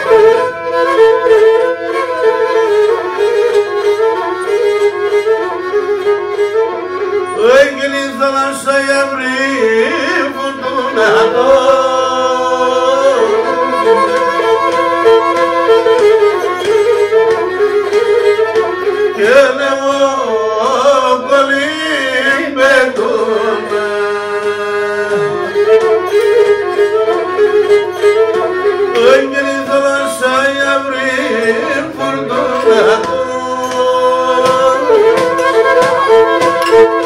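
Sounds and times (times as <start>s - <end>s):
bowed lyra folk melody: 0.0s - 37.0s
man singing: 7.4s - 15.6s, 19.1s - 25.8s, 28.9s - 37.0s.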